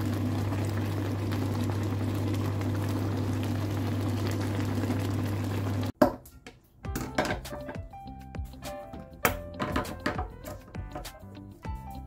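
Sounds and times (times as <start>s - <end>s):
soup boiling: 0.0s - 6.0s.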